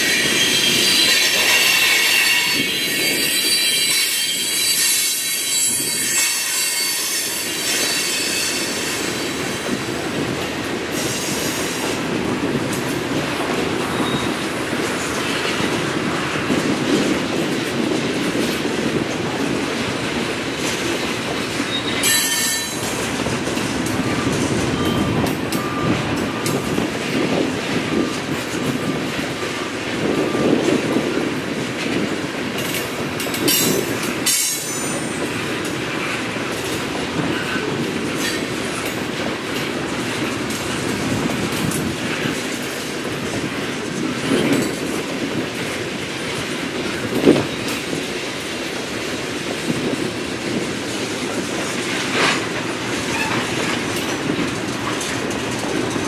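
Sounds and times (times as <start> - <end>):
wheel squeals: 0.0 - 9.4, 13.9 - 14.5, 21.6 - 23.0, 53.0 - 54.2
train wheels clacking on rails: 0.0 - 56.0.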